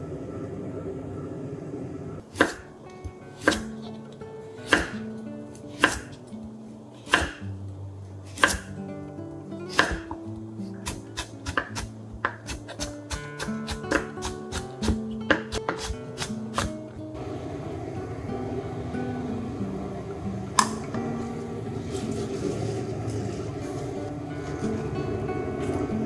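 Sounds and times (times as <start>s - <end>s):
knife chopping carrot on board: 2.4s - 2.6s, 3.4s - 3.7s, 4.7s - 5.0s, 5.8s - 6.1s, 7.1s - 7.4s, 8.3s - 8.7s, 9.7s - 10.2s, 10.8s - 16.8s.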